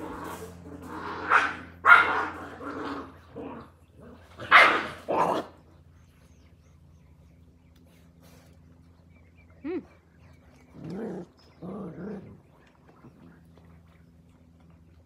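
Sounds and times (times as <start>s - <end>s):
puppies barking: 0.0s - 5.9s.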